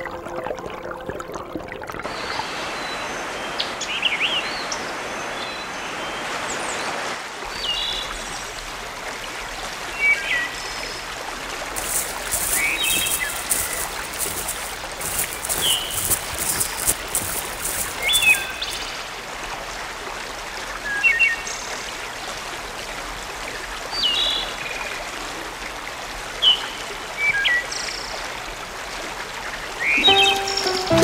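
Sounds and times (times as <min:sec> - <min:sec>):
stream running over rocks: 0:06.4 - 0:31.0
music: 0:30.0 - 0:31.0.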